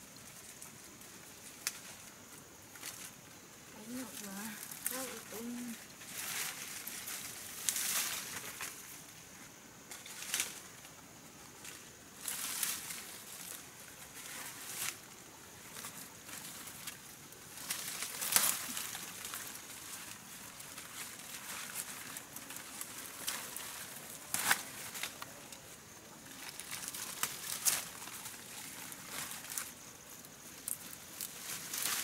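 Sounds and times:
leaves rustling and crackling: 0.0 - 32.0
plant stems snapping: 17.6 - 19.4, 24.3 - 25.6.

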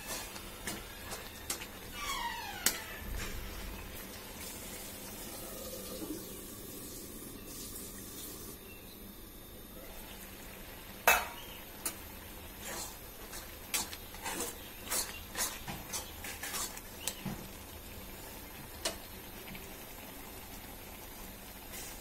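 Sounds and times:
spatula scraping pan: 0.0 - 3.4, 12.6 - 17.2
vegetables sizzling in pan: 0.0 - 8.6, 9.7 - 22.0.

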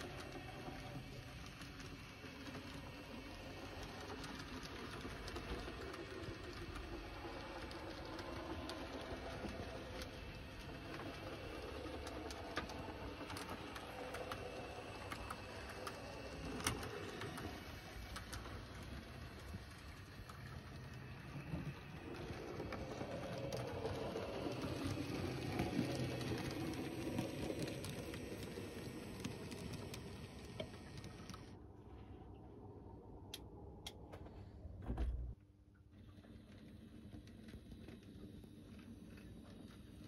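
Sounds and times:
model train motor and wheel rumble: 0.0 - 31.6.

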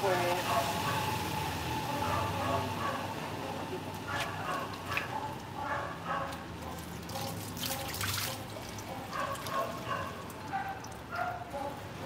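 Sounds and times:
hose water splashing on concrete: 3.8 - 11.6.

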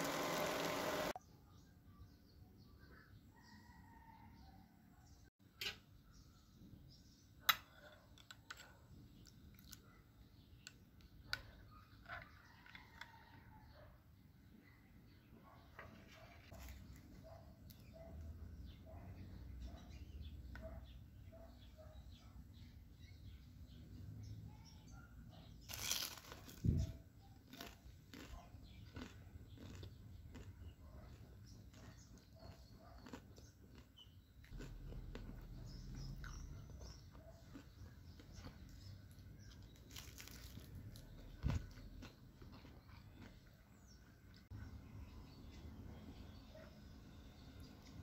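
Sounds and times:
crisp crunch of fried wrapper: 25.6 - 26.8, 27.4 - 30.6, 39.1 - 43.4.

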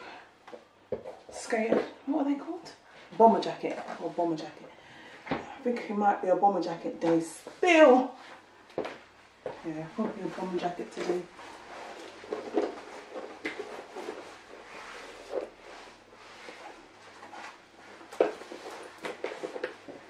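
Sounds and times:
clothing rustle: 7.0 - 20.0.

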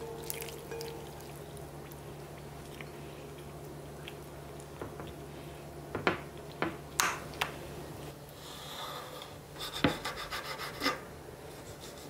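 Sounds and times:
soft wet squishing: 0.0 - 5.7.

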